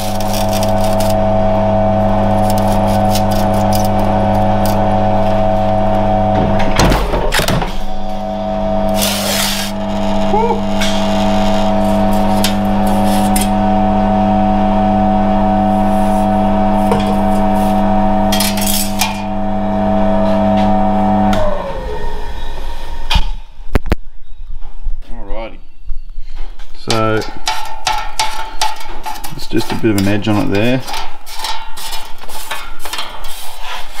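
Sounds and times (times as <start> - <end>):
electric motor humming: 0.0 - 22.4
motor spinning down: 0.0 - 23.1
guillotine cutting bursts: 7.9 - 13.8.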